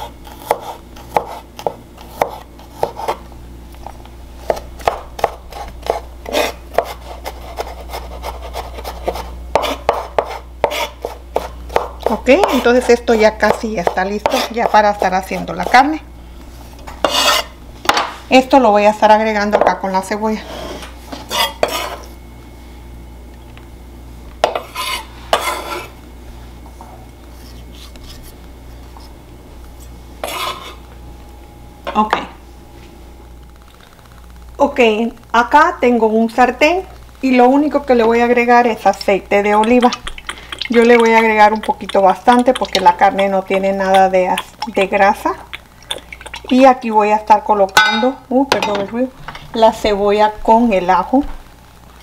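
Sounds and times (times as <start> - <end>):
knife chopping on wooden board: 0.0 - 3.2, 4.5 - 12.6, 13.4 - 15.0, 24.4 - 25.9
knife scraping across wood: 5.5 - 9.8, 10.6 - 11.5, 17.0 - 17.6, 20.4 - 22.1, 24.6 - 26.0, 29.8 - 30.8.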